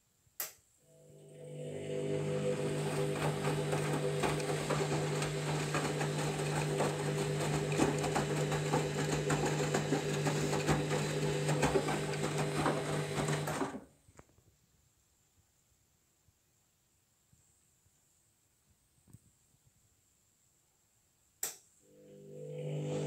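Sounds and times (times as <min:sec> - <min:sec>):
washing machine motor hum: 0:00.9 - 0:13.8, 0:21.9 - 0:23.0.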